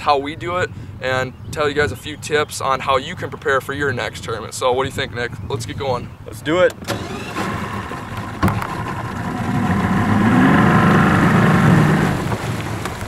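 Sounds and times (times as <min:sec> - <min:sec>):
outboard motor running: 0:06.8 - 0:13.0.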